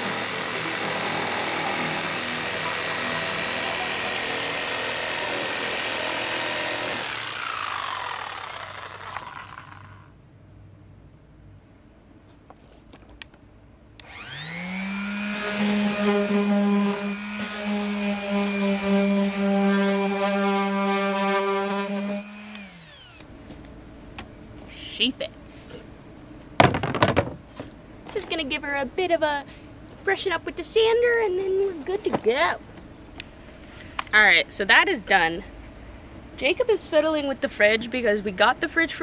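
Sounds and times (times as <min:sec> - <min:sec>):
jigsaw cutting plywood: 0:00.0 - 0:10.1, 0:14.0 - 0:23.2.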